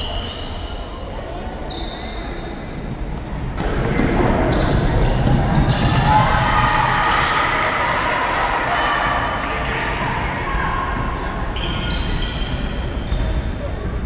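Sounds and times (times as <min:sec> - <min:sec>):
sneakers squeaking on court: 0:00.0 - 0:05.9, 0:11.2 - 0:14.0
crowd shouting and cheering: 0:03.6 - 0:13.0.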